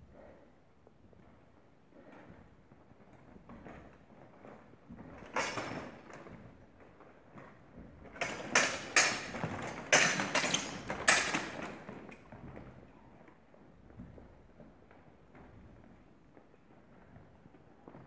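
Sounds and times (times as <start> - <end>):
swords clashing on metal: 8.2 - 11.6.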